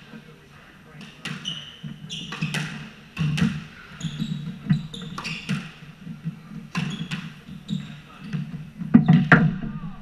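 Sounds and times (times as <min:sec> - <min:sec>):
squash ball hits: 0:01.1 - 0:03.7, 0:04.4 - 0:05.8, 0:06.7 - 0:07.4
shoes squeaking: 0:01.1 - 0:09.4.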